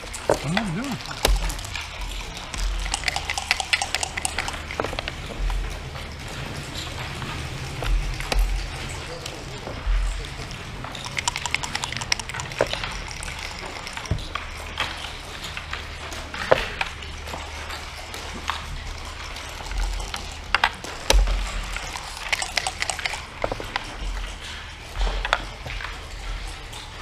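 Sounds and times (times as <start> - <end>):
checkers clacking on wooden board: 0.3 - 1.8, 2.5 - 5.1, 11.0 - 14.3, 21.2 - 23.4
dice rolling and knocking: 11.1 - 13.3, 21.8 - 23.2.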